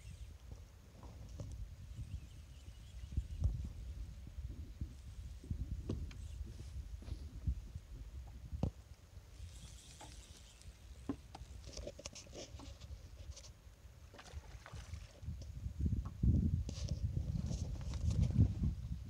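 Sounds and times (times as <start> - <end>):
wind buffeting microphone: 1.1 - 8.8, 15.1 - 19.0.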